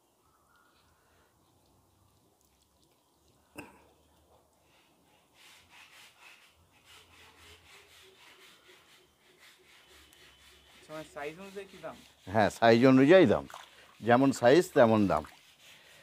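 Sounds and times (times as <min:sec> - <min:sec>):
faint rubbing and rustling: 0:04.2 - 0:16.0.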